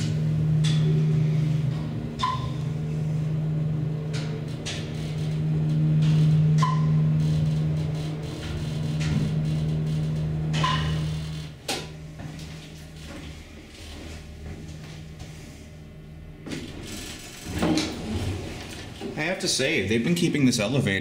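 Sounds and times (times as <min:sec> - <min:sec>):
elevator car stopping thump: 0:00.0 - 0:15.3, 0:16.4 - 0:19.2
elevator pump motor humming: 0:00.0 - 0:21.0
elevator chime chirp: 0:02.2 - 0:02.9, 0:06.1 - 0:07.2.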